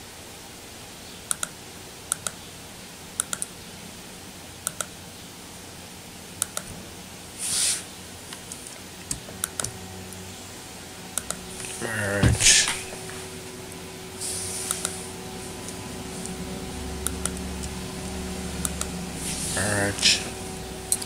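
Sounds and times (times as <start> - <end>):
computer mouse clicking: 1.3 - 2.4, 3.2 - 3.5, 4.6 - 4.9, 6.4 - 6.7, 8.4 - 9.8, 11.2 - 11.4, 14.6 - 15.0, 17.0 - 17.8, 18.6 - 18.9
short hiss: 7.4 - 7.9, 14.2 - 15.0.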